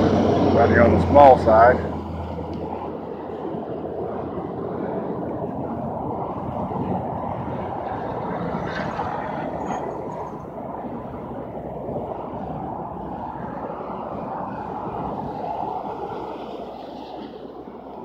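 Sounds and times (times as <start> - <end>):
road traffic noise: 0.0 - 18.0.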